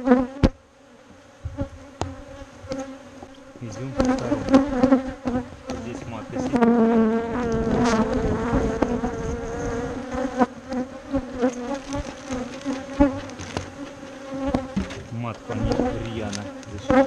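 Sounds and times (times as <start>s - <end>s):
honeybees buzzing: 0.0s - 17.0s
sharp knocks: 13.3s - 15.9s.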